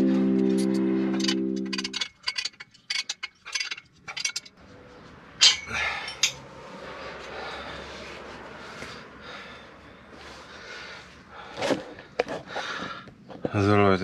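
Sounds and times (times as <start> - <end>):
background music: 0.0 - 2.0
metallic clinks of tools: 1.2 - 4.5.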